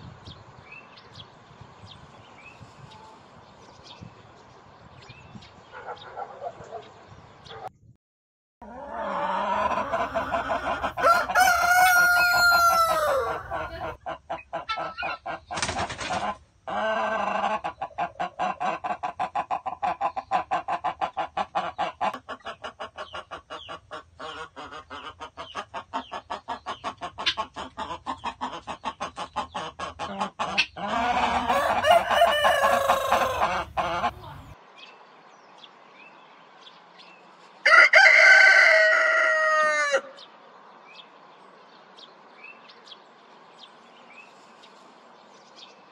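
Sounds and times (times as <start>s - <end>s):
chickens clucking: 8.6s - 34.6s
rooster crowing: 8.9s - 14.0s, 30.9s - 34.1s, 37.6s - 40.2s.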